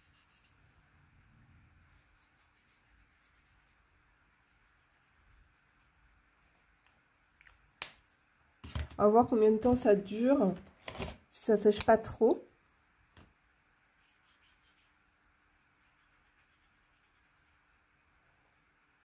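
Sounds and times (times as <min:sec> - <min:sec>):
paint marker scratching on paper: 0:00.0 - 0:00.8, 0:01.9 - 0:06.0, 0:14.0 - 0:15.0, 0:15.8 - 0:17.7.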